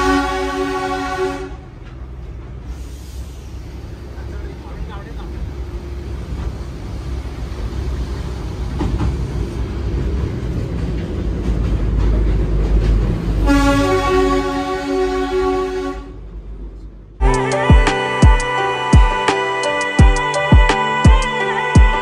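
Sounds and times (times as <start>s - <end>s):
train horn: 0.0s - 1.9s, 13.4s - 16.4s
train clacks: 0.0s - 15.3s
train rumbling: 0.0s - 22.0s.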